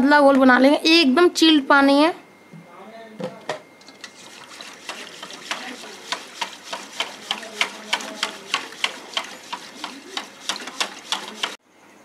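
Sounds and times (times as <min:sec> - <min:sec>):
whisk clinking in metal bowl: 0:04.1 - 0:11.6.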